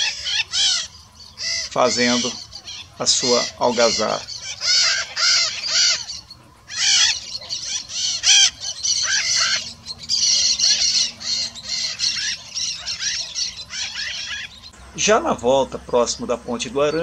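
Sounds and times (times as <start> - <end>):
macaws squawking: 0.0 - 17.0.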